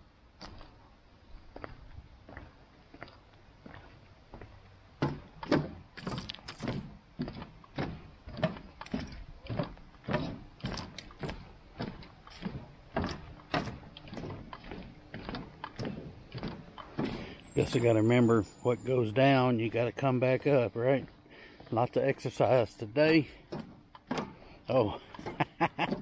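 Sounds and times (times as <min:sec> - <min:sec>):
footsteps going down stairs: 0:01.4 - 0:18.0, 0:23.2 - 0:26.0.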